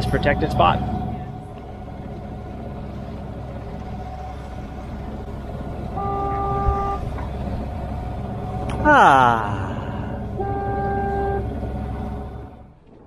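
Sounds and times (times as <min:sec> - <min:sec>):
boat engine running: 0:00.0 - 0:13.0
water rushing past hull: 0:00.0 - 0:13.0
steady horn-like tone: 0:05.5 - 0:07.2, 0:10.0 - 0:12.6.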